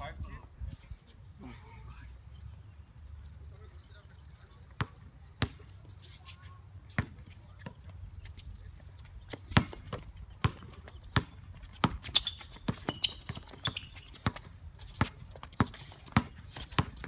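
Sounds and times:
sneaker squeaks: 0:04.8 - 0:17.0
basketball bouncing on hard court: 0:09.4 - 0:17.0.

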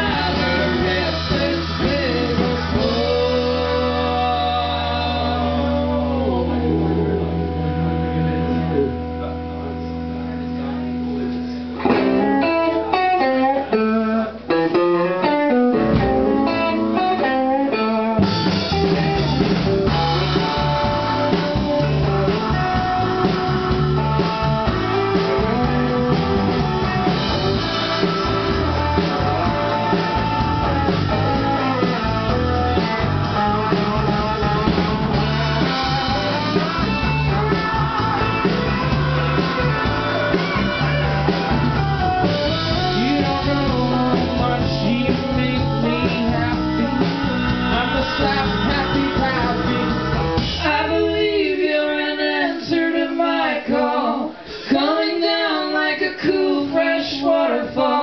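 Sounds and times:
live band playing: 0:00.0 - 0:58.0
electric guitar runs: 0:18.2 - 0:50.5.

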